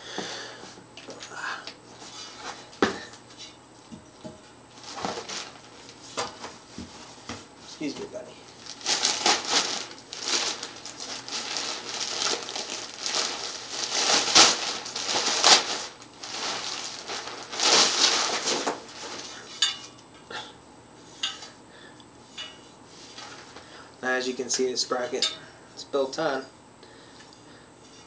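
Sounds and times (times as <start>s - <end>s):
plastic wrap rustling: 4.8s - 19.7s, 23.0s - 23.7s.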